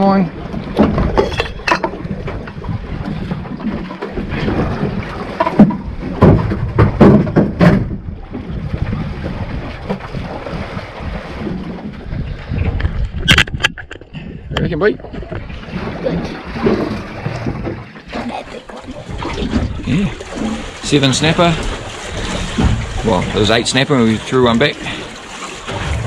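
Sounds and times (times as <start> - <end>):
wind buffeting microphone: 0.0 - 17.9, 18.8 - 26.0
water lapping against boat hull: 0.0 - 26.0
knocks: 5.4 - 8.0.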